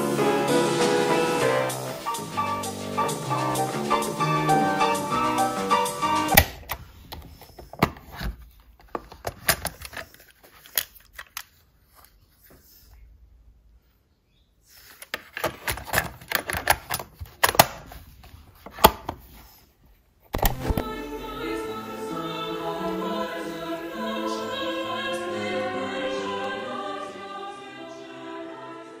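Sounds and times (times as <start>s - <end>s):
muffled choral and orchestral music: 0.0s - 6.4s, 20.4s - 29.0s
plastic clicks and clatter: 6.6s - 11.6s, 15.0s - 18.0s.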